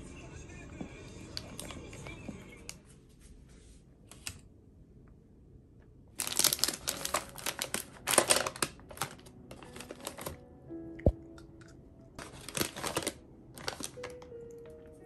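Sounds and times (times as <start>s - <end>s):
plastic snack bag crinkling: 6.2s - 10.4s, 12.2s - 14.6s.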